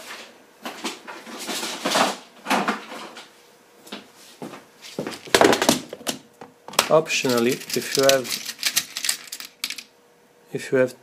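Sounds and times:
small objects rustling and knocking: 5.2 - 9.8.

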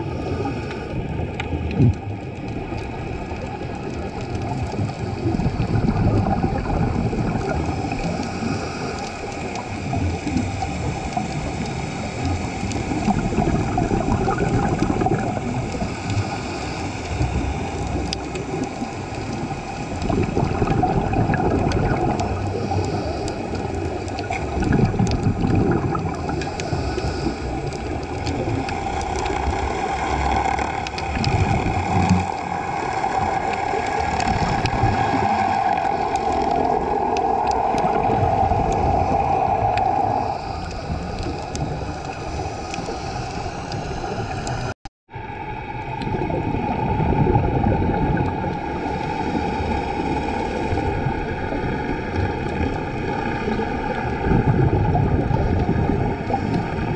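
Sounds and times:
diver breathing bubbles: 0.0 - 56.9
motorboat engine drone underwater: 0.0 - 56.9
faint crackling clicks: 0.2 - 44.7.

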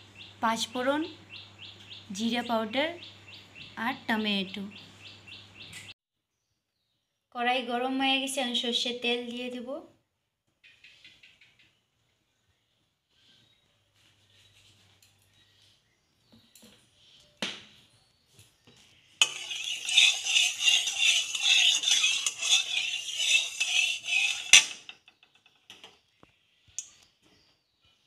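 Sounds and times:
spatula clinking on pan: 19.2 - 24.8
spatula scraping metal pan: 19.2 - 25.0.

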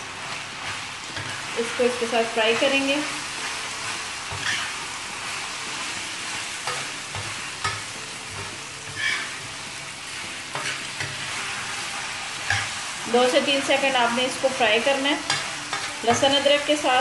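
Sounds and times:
chicken sizzling in oil: 0.0 - 17.0
steel spoon scraping a griddle: 3.9 - 4.9, 6.6 - 9.5, 10.2 - 13.6, 15.2 - 16.6.

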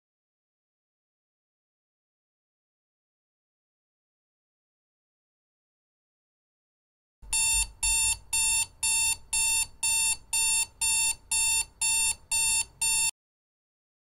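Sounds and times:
digital alarm clock beeping: 7.3 - 13.1.

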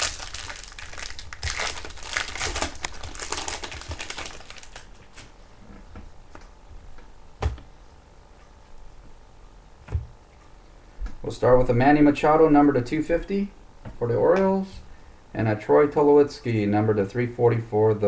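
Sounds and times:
plastic wrapper crinkling: 0.0 - 5.3.

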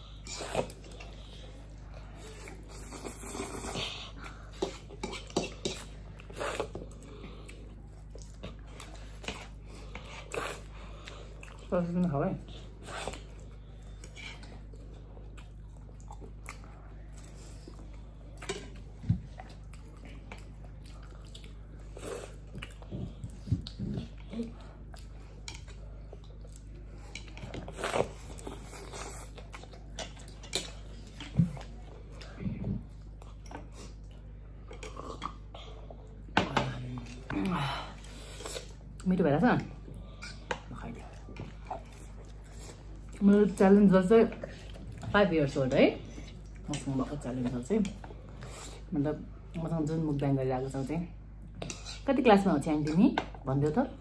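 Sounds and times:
chewing noodles: 12.4 - 39.1.

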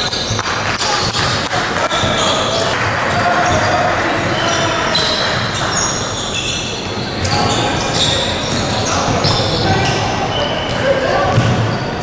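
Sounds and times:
sneakers squeaking on floor: 0.0 - 12.0
basketball bouncing: 11.3 - 11.8.

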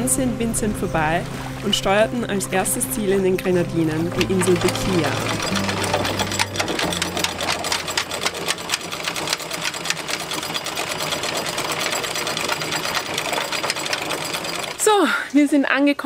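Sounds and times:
anchor chain rattling: 3.5 - 15.0.

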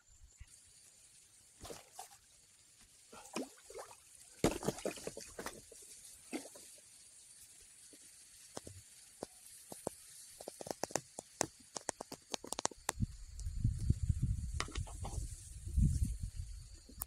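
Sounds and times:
water splashing against a raft: 1.6 - 2.3, 3.1 - 6.8.

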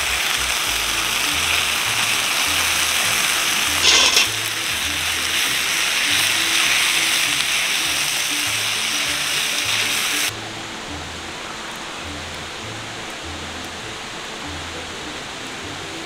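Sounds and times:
stir fry sizzling in skillet: 0.0 - 10.4
music with bass line: 0.0 - 16.0
outdoor hiss: 0.0 - 16.0.

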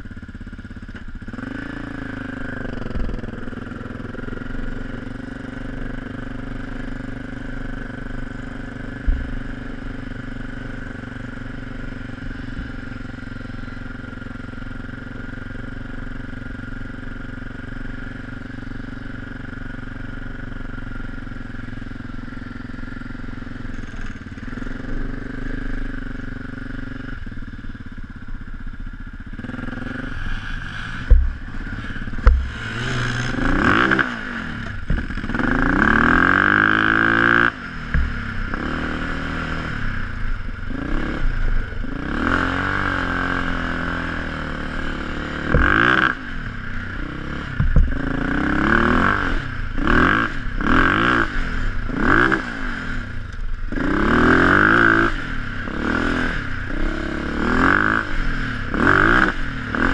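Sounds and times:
quad engine revving: 0.0 - 28.0, 29.1 - 59.9
sharp knocks: 9.0 - 9.6, 31.0 - 33.8, 37.9 - 38.3, 47.6 - 48.1.

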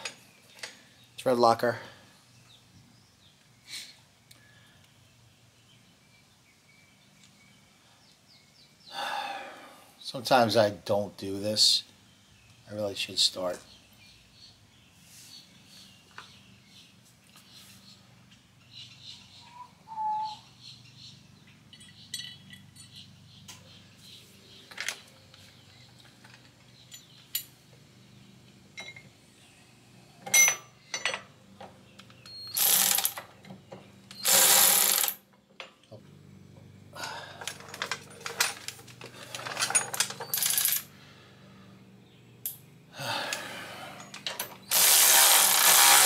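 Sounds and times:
tools clinking on metal: 21.7 - 23.1, 28.8 - 29.1, 30.2 - 31.3
rapid ratcheting: 32.5 - 33.2, 34.2 - 35.2, 44.6 - 46.0.

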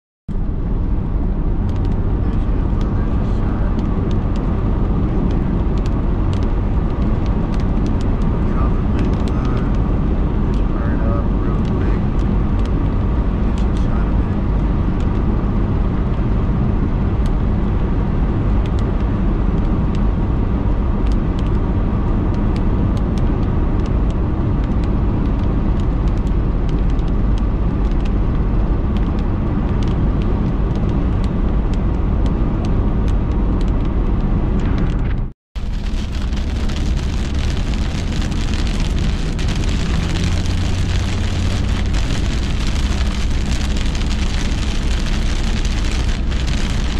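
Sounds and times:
car cabin road and engine noise: 0.3 - 46.9
raindrops ticking on windshield: 1.7 - 15.2, 35.6 - 46.9
heavy rain hiss on wet road: 35.6 - 46.9.

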